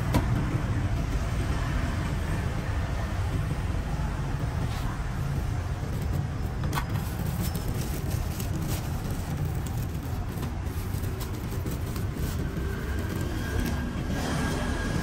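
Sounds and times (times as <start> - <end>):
road traffic rumble: 0.0 - 15.0
plastic bag crinkling: 6.8 - 13.9.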